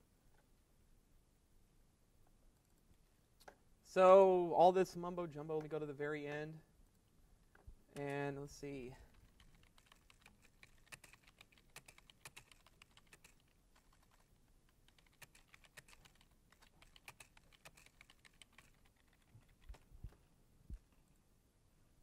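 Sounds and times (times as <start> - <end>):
faint typing on keyboard: 7.5 - 21.2.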